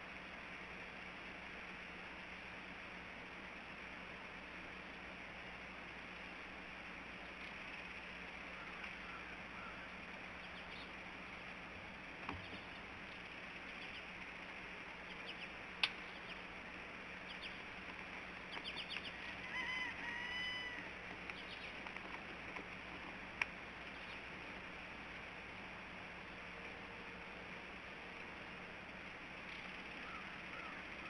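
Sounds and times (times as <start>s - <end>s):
background hiss: 0.0s - 31.0s
bird honking calls: 8.5s - 10.9s, 18.6s - 21.8s
sharp clicks: 15.8s - 16.1s.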